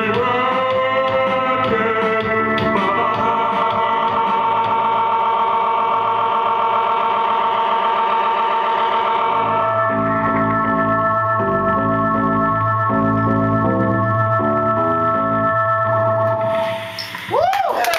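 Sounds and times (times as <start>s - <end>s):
electronic keyboard organ chords: 0.0s - 17.1s.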